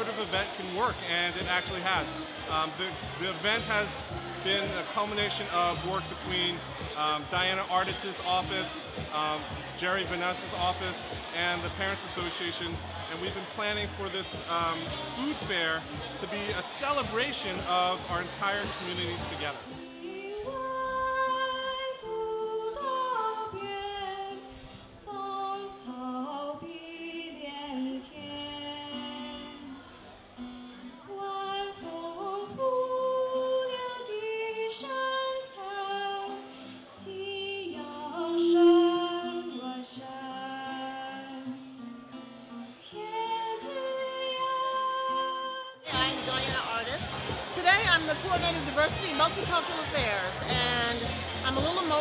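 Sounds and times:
acoustic guitar: 0.0s - 52.0s
girl singing into microphone: 19.7s - 29.8s, 31.0s - 41.8s, 42.8s - 45.8s.

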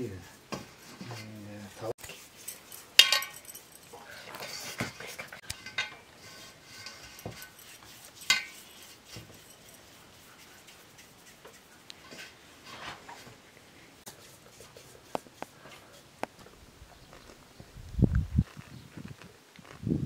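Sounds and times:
steel bowl and metal tray clinking: 2.1s - 10.1s.

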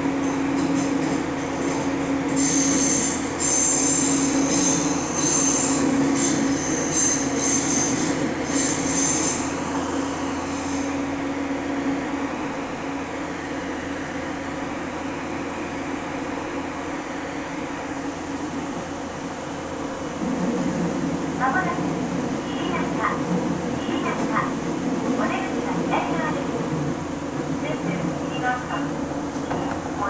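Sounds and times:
train hum and rumble: 0.0s - 30.0s
wheel squeal: 2.4s - 9.5s.

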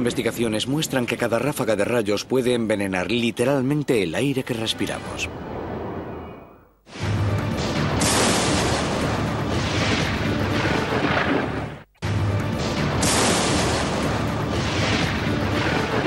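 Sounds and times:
music: 4.4s - 16.0s
thunder crashes: 6.9s - 11.7s.

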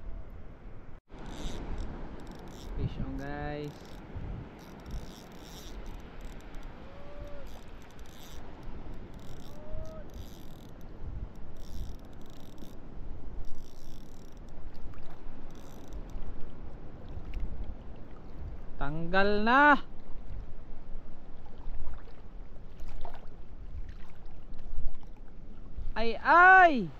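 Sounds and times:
wind on microphone: 0.0s - 26.2s
shallow water moving: 1.0s - 18.8s, 20.0s - 26.1s
spinning reel hissing: 1.2s - 1.6s.

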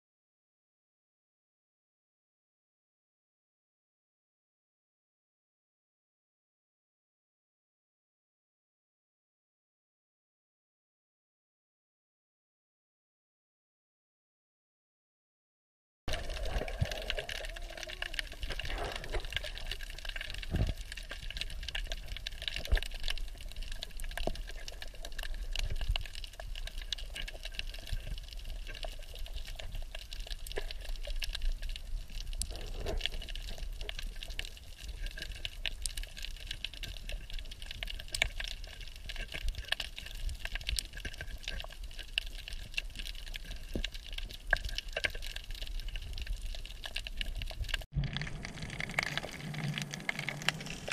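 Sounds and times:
sharp underwater clicks and crackles: 16.1s - 50.9s
underwater hiss and rumble: 16.1s - 50.9s.

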